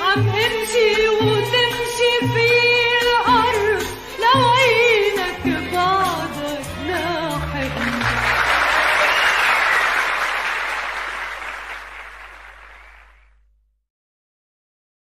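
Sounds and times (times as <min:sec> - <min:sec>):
audience applauding: 0:07.7 - 0:13.3.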